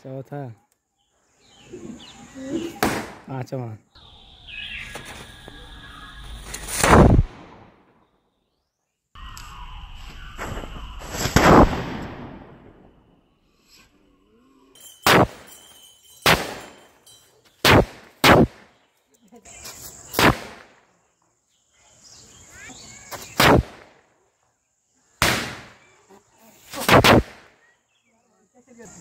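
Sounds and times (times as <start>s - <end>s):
firecrackers banging: 10.3s - 13.0s, 14.8s - 18.6s.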